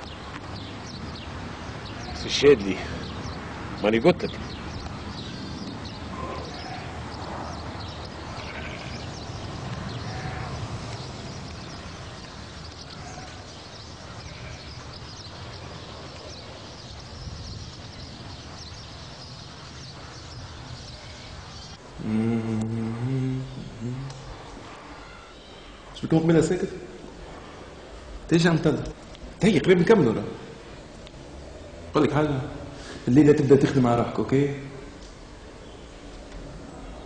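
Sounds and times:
faint bird chirps: 0.0 - 27.9
background hiss: 0.0 - 37.0
animal calls: 5.9 - 18.2.

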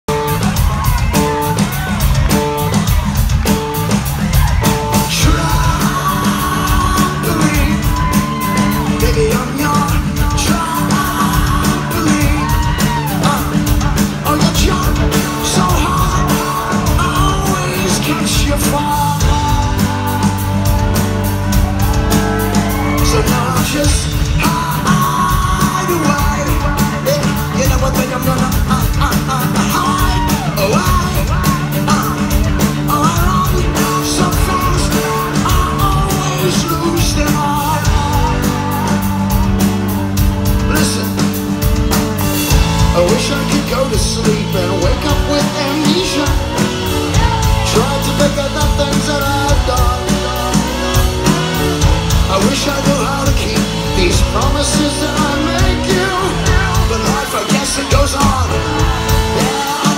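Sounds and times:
crowd yelling: 0.0 - 59.9
rock band playing live: 0.0 - 59.9
man singing into microphone: 4.9 - 20.8, 22.5 - 39.8, 42.7 - 59.9.

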